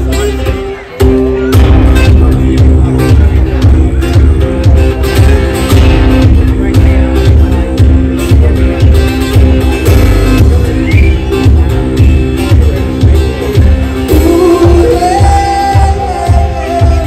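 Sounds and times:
twelve-string guitar strumming: 0.0 - 17.0
man singing: 14.0 - 17.0.

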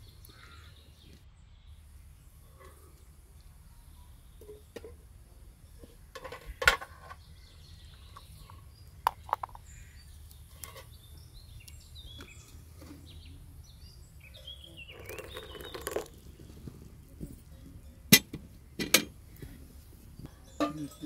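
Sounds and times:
small birds chirping: 0.0 - 21.0
tea pouring into glass cups: 14.4 - 17.9
metal kettles knocking on stone: 14.9 - 16.2, 20.4 - 21.0.

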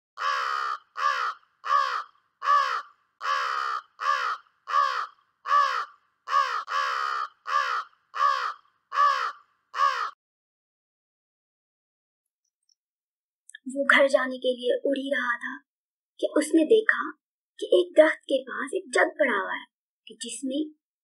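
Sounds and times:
crow cawing: 0.2 - 10.2.

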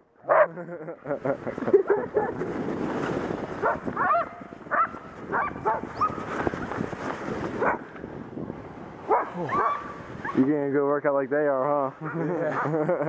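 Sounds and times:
steady rushing noise: 1.0 - 13.0
dogs yipping and whining: 9.1 - 10.4.

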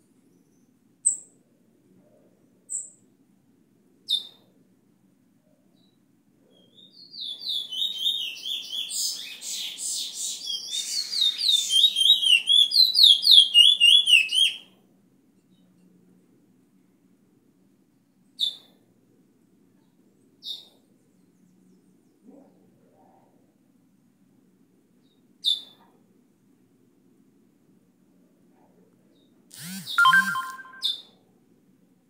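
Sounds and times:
bird chirps: 5.8 - 14.6, 29.6 - 31.1
bird whistled notes: 29.9 - 31.0.

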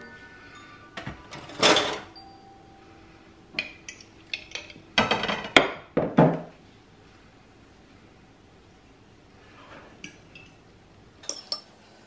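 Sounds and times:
metal spoon clinking glass: 11.2 - 11.7.

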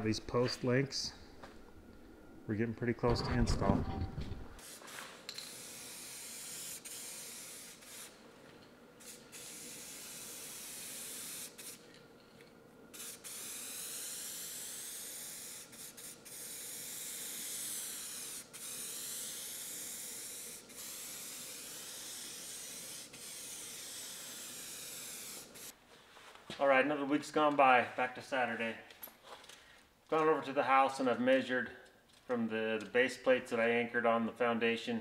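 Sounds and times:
spray paint can hissing: 4.6 - 8.2, 9.0 - 12.0, 12.9 - 25.8.

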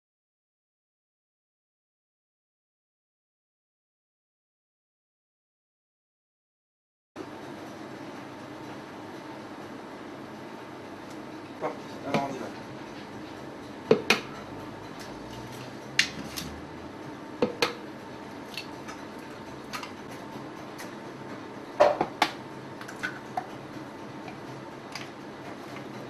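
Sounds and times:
low room hum: 7.2 - 26.0.

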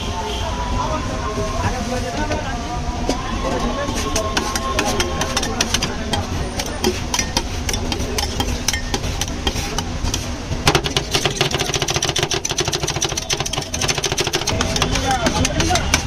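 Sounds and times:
metal spatulas clacking on steel: 4.3 - 16.0.

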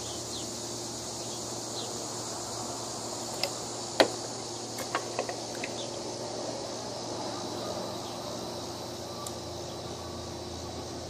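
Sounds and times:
outdoor background hiss: 0.0 - 11.0
faint bird chirps: 7.2 - 11.0.

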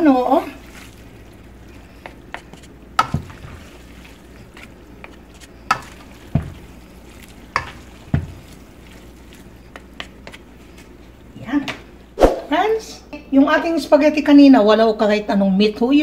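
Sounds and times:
pasta strands shuffling in pan: 0.0 - 12.0.

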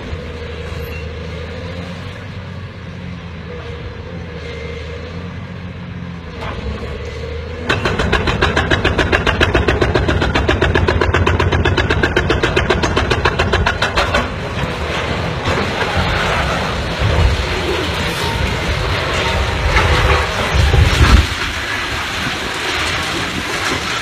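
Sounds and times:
heavy machinery engine running: 0.0 - 24.0
rough rumble: 6.3 - 24.0.

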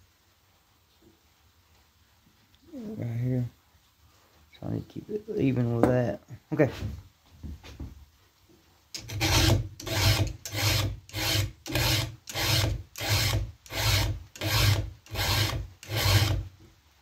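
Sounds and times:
file rasping on chainsaw chain: 9.0 - 16.5.

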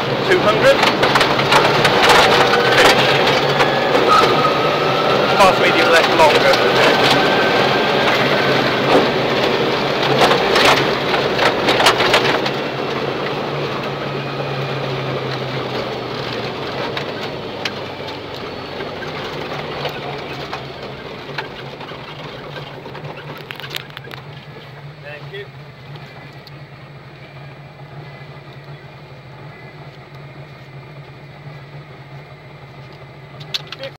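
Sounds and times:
car engine running: 0.0 - 33.9
tyres on gravel: 0.0 - 33.9
stones clattering against car underside: 16.4 - 24.9.

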